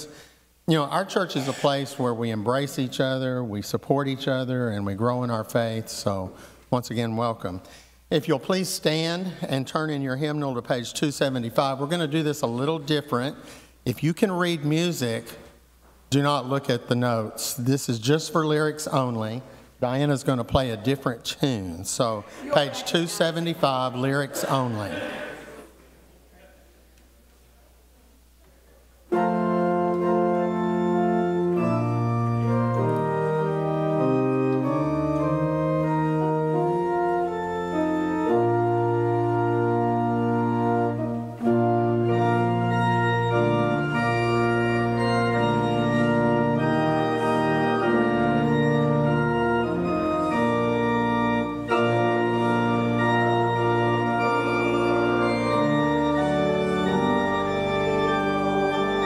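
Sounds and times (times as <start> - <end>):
church organ playing hymn: 0.0 - 15.5, 16.1 - 25.0, 29.1 - 59.0.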